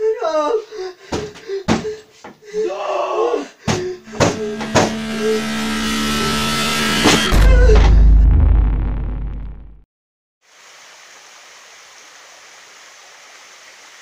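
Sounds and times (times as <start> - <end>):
rising swell with steady hum: 4.0 - 9.8
sharp hit: 4.0 - 9.8.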